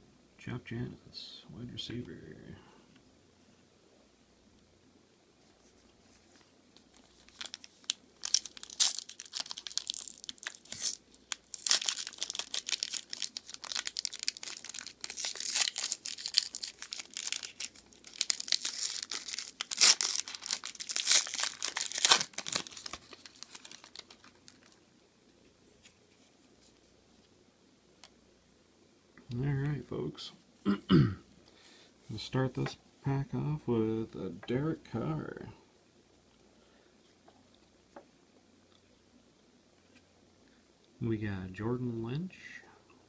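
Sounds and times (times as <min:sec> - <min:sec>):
foil wrapper tearing and crinkling: 0:06.8 - 0:24.8.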